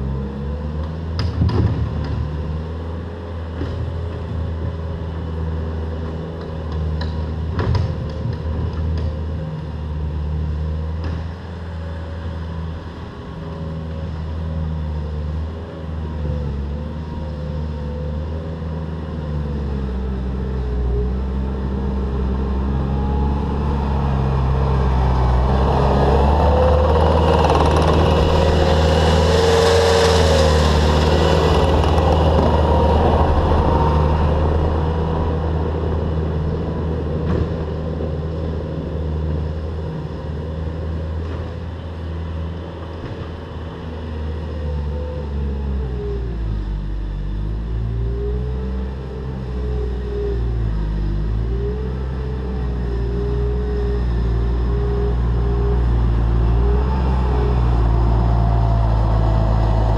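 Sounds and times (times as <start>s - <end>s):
diesel engine under load: 0.0s - 59.9s
dirt rushing noise: 25.2s - 35.7s.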